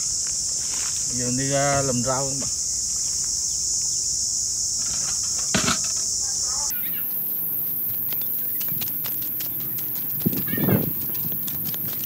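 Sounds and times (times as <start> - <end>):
high-pitched insect drone: 0.0 - 12.0
footsteps on dirt path: 6.7 - 12.0.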